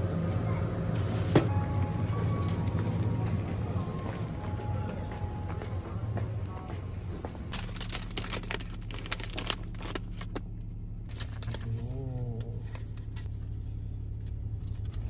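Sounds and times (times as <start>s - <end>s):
car engine idling: 0.0s - 15.0s
paper bag crinkling: 7.5s - 10.4s, 11.1s - 11.9s.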